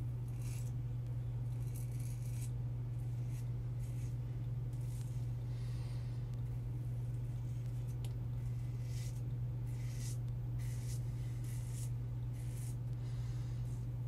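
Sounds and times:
razor scraping stubble: 0.0 - 0.8, 1.4 - 5.3, 7.0 - 13.0
steady low hum: 0.0 - 14.0.

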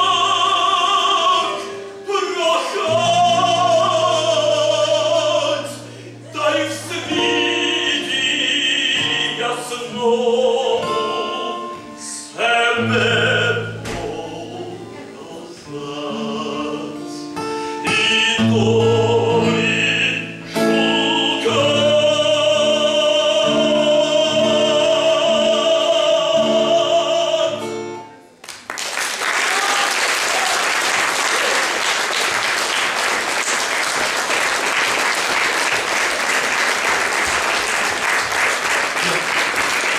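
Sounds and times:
man singing operatically: 0.0 - 28.0
strummed acoustic guitar: 0.0 - 28.3
audience applause: 28.4 - 39.9.

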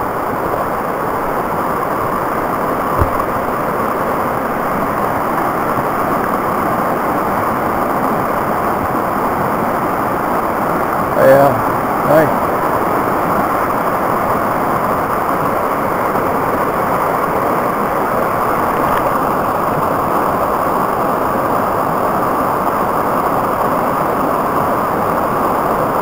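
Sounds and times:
brook rushing over boulders: 2.8 - 4.0.

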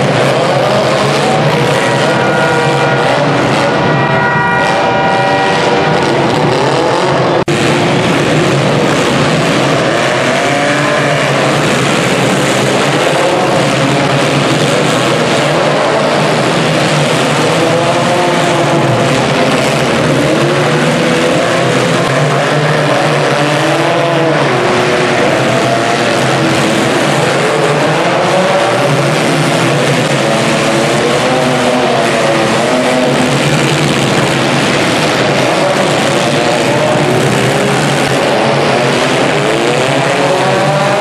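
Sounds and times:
car engines revving: 0.0 - 41.0.

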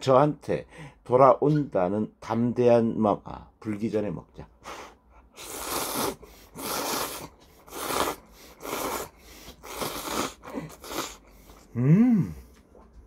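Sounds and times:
man slurping noodles: 5.4 - 12.3.

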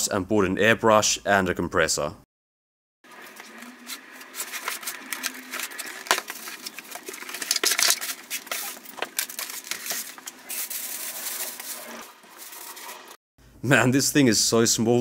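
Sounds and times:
cardboard and foam packaging handled: 3.1 - 13.2
plastic bag rustling: 3.1 - 13.2.

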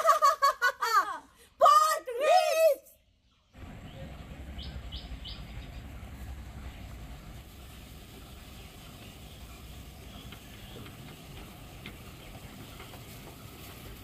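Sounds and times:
bird chirping: 3.0 - 7.0, 8.2 - 13.0
low outdoor rumble: 3.5 - 14.0.

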